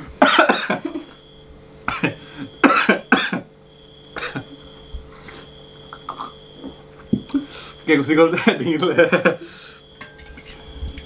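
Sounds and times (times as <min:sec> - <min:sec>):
man coughing: 0:00.2 - 0:01.1, 0:01.9 - 0:03.5, 0:04.2 - 0:04.6.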